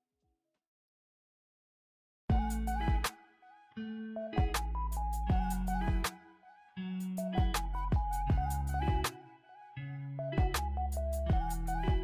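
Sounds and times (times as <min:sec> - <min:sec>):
melody over bass and beat: 0:02.3 - 0:03.1, 0:04.3 - 0:06.1, 0:07.0 - 0:09.2, 0:10.3 - 0:12.0.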